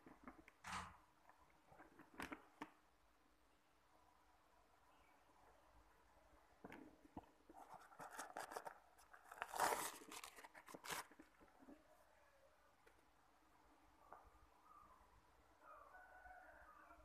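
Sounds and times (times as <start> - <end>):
plastic crinkling and rustling: 6.6 - 11.8.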